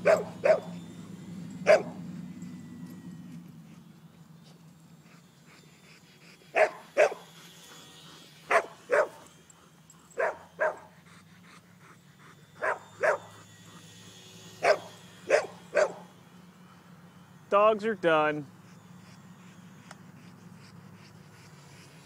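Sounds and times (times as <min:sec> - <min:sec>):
dog barking: 0:00.0 - 0:00.8, 0:01.7 - 0:02.0, 0:06.6 - 0:07.2, 0:08.5 - 0:09.2, 0:10.2 - 0:10.9, 0:12.6 - 0:13.3, 0:14.6 - 0:16.0
faint low hum: 0:00.0 - 0:22.0.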